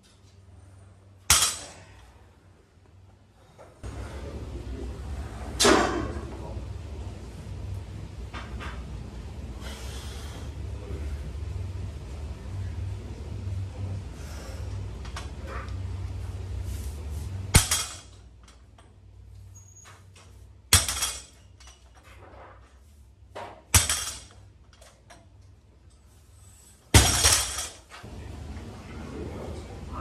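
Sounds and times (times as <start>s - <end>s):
barbell thudding on gym floor: 17.5s - 18.1s, 20.7s - 21.4s, 23.4s - 24.4s, 26.9s - 27.8s.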